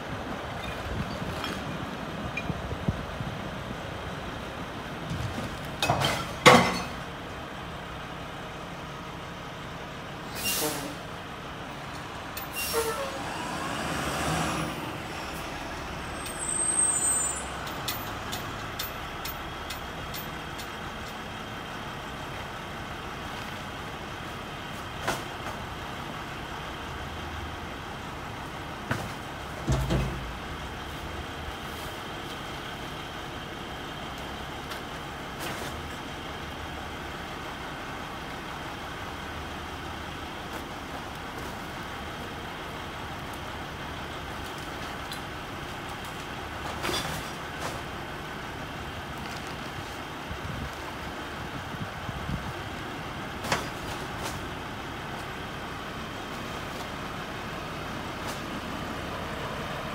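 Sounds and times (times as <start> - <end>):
garbage truck idling: 14.7 - 59.9.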